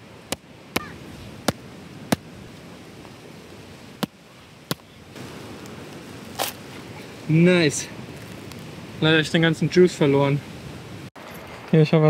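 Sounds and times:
background hiss: 0.0s - 12.0s
coconut knocking against rock: 0.3s - 2.3s, 4.0s - 4.9s.

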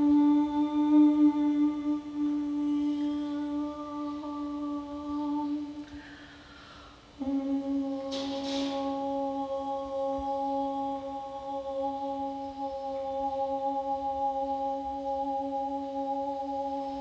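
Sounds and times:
person humming a steady note: 0.0s - 17.0s
brief hiss: 8.0s - 9.1s.

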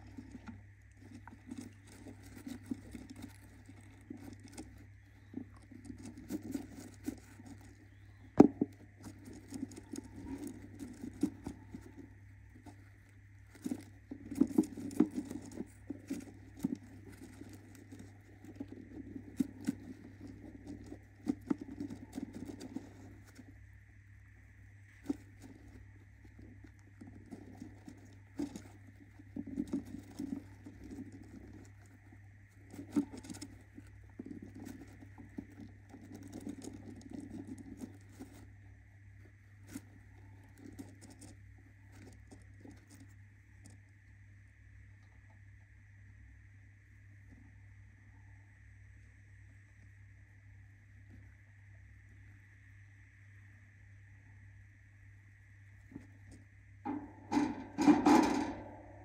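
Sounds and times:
bird scratching on wooden floor: 0.0s - 23.6s, 24.9s - 38.6s
faint steady hum: 0.0s - 59.0s.

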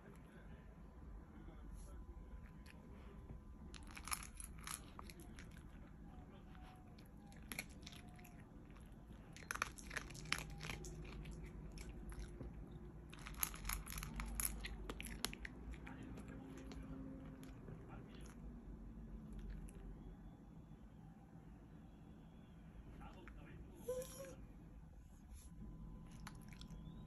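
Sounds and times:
dog crunching dry kibble: 3.6s - 18.4s.

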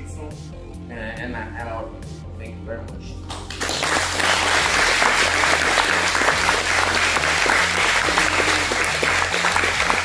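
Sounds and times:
people applauding: 3.3s - 10.0s.

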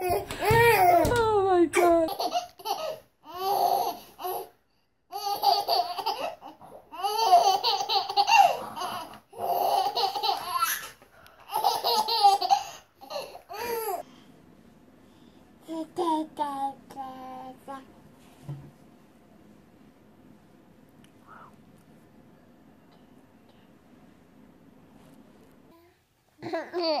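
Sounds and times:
baby laughing: 1.8s - 4.5s, 5.1s - 14.0s, 26.4s - 27.0s.

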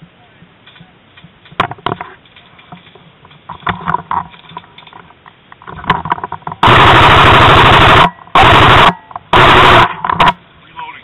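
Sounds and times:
airsoft gun automatic fire: 6.6s - 10.4s.

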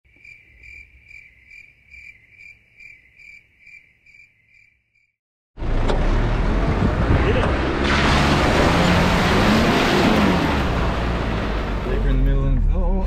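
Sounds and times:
cricket chirping: 0.1s - 5.2s.

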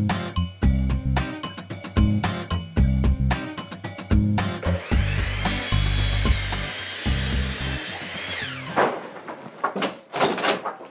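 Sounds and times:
music with deep bass line: 0.0s - 7.8s
power saw cutting wood: 4.6s - 9.4s.

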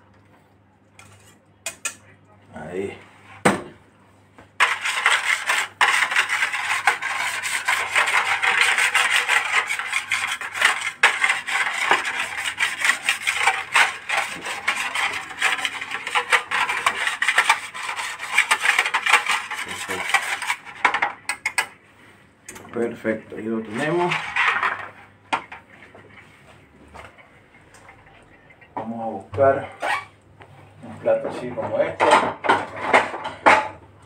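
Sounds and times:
utensil scraping a metal baking tray: 1.0s - 2.0s, 4.6s - 21.7s, 23.4s - 25.0s.

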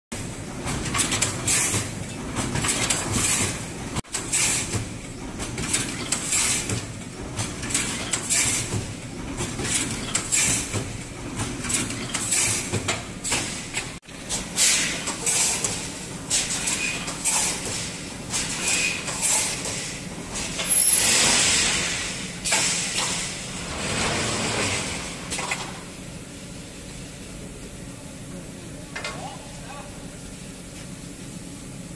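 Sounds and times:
hissing clatter of welds: 11.6s - 25.8s.

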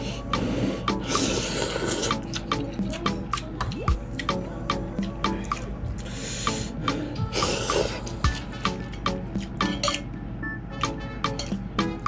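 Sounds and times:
music with plucked beat: 0.3s - 1.3s, 2.0s - 12.0s
slurping noodles: 0.4s - 2.7s.

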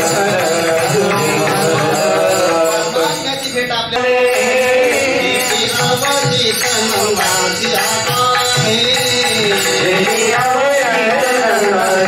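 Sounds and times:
drum beat: 0.0s - 2.7s
men singing: 0.0s - 12.0s
small hand cymbals: 0.0s - 12.0s.

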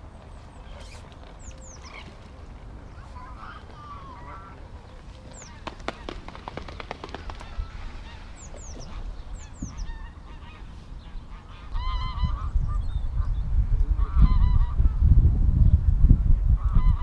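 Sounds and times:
geese honking: 3.0s - 4.7s, 7.4s - 12.6s
wind rumble on microphone: 7.2s - 17.0s.

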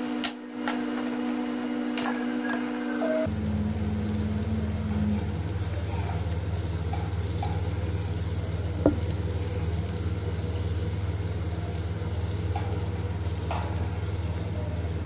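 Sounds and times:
low hum: 3.0s - 15.0s
vegetables sizzling in oil: 3.3s - 15.0s.

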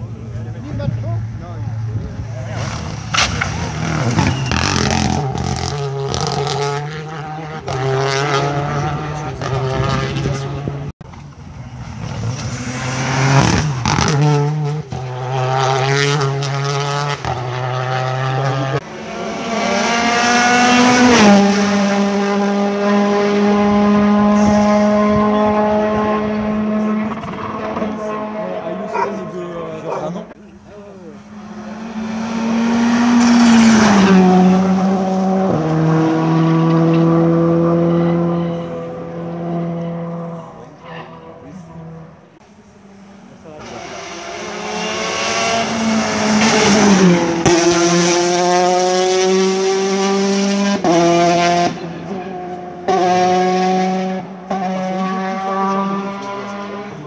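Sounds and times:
rally car engine revving: 0.0s - 57.0s
rush of tyre and wind noise: 20.2s - 28.3s.

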